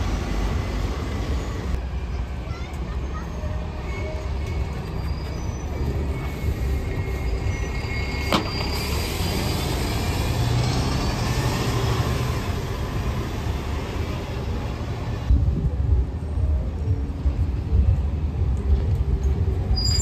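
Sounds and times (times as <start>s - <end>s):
bus engine running: 0.0s - 1.8s
road traffic: 0.0s - 20.0s.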